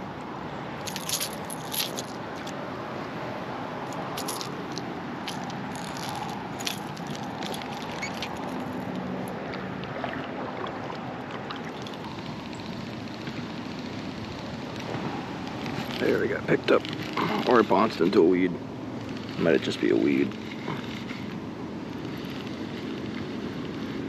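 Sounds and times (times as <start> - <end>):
road traffic hum: 0.0 - 24.0
light clicks and rattles: 0.8 - 2.6, 3.8 - 9.0.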